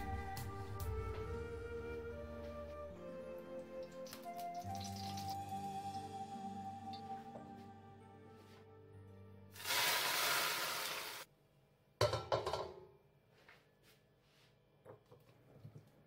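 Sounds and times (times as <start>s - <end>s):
hot oil sizzling: 4.2s - 5.6s, 9.6s - 11.3s
wok clanking on hob: 12.0s - 12.8s.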